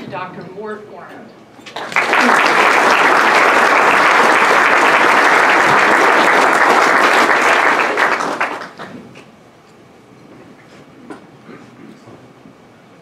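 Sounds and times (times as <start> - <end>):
audience applauding: 1.7 - 9.0.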